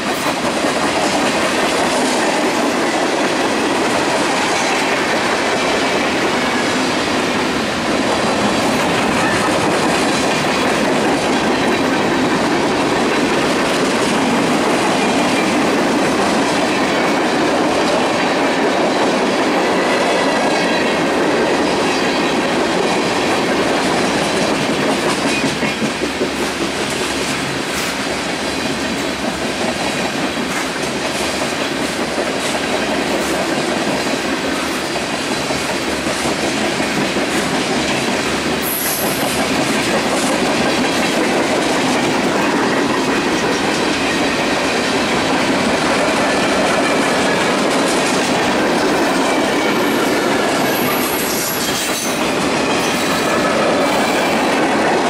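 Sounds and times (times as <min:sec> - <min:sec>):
clickety-clack over rail joints: 0:00.0 - 0:55.0
train wheels rumbling on rails: 0:00.0 - 0:55.0.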